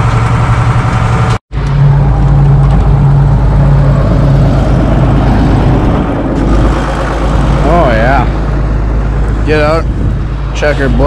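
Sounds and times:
tractor engine running: 0:00.0 - 0:11.0.

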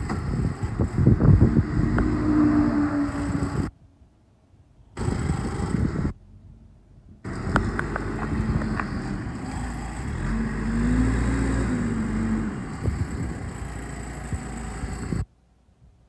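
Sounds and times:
diesel engine running: 0:05.0 - 0:15.3.

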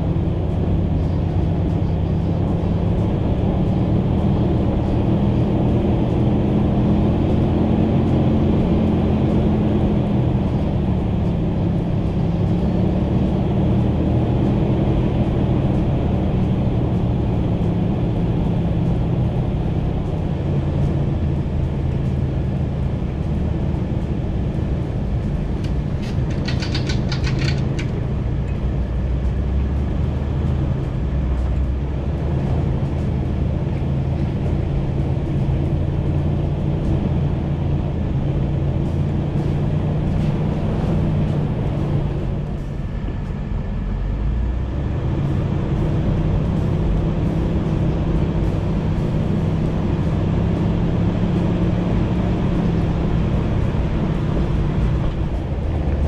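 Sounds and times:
tyre and road noise: 0:00.0 - 0:56.0
vehicle engine drone: 0:00.0 - 0:56.0
high clicking rattle: 0:25.6 - 0:28.6.

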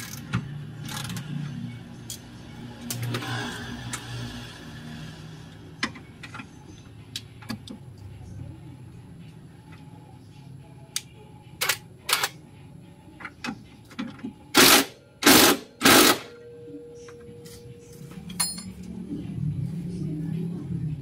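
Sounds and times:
metallic clink: 0:17.1 - 0:18.9.

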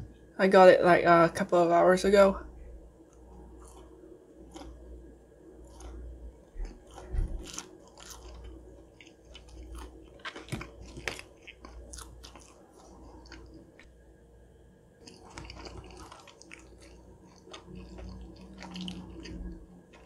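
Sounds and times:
person chewing crisp food: 0:03.0 - 0:04.9, 0:05.6 - 0:13.9, 0:15.0 - 0:20.0.

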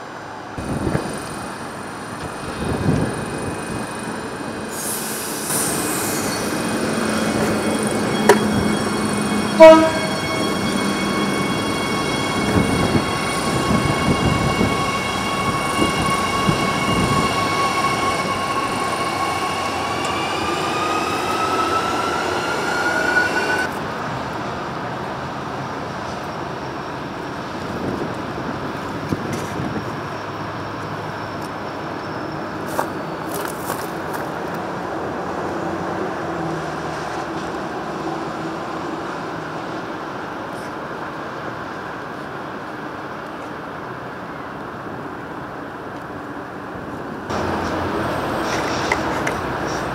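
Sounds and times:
distant train rumble: 0:00.6 - 0:24.1.

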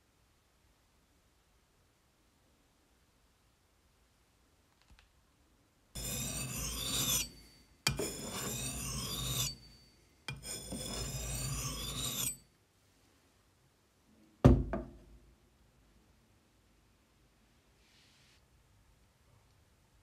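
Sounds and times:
blade scraping on sharpening stone: 0:06.0 - 0:12.4.

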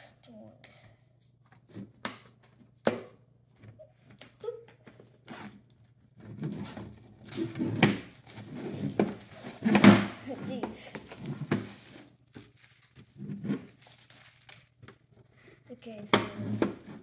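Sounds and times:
plastic wrap crinkling and tearing: 0:05.0 - 0:15.1.

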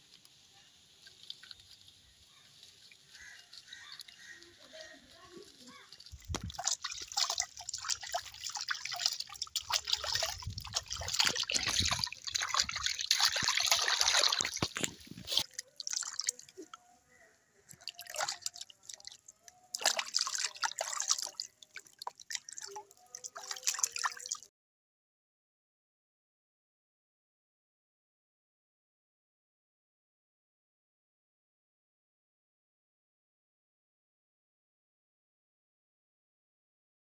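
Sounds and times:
water splashing in a basin: 0:00.8 - 0:24.5
water running off: 0:02.6 - 0:16.8.

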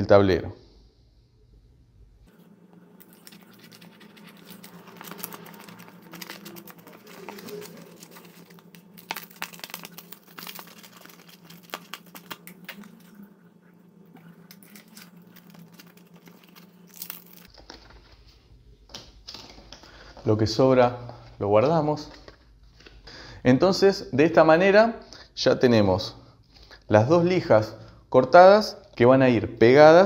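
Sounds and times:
steady low hum: 0:00.0 - 0:25.5
sandpaper crackling and scraping: 0:03.0 - 0:12.9.

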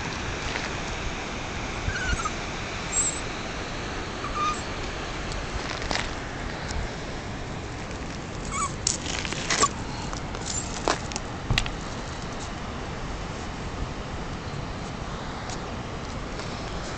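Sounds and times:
small dog whimpering: 0:01.9 - 0:03.2, 0:04.2 - 0:04.7, 0:08.5 - 0:08.8.

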